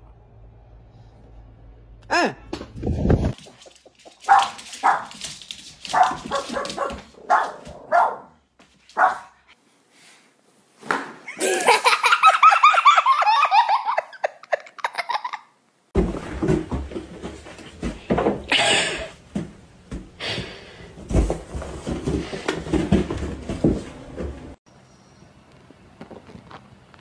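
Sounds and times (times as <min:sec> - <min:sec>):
small dog barking: 0:04.3 - 0:05.1, 0:05.9 - 0:08.4, 0:09.0 - 0:09.3
loud rapid laughter: 0:11.3 - 0:15.5.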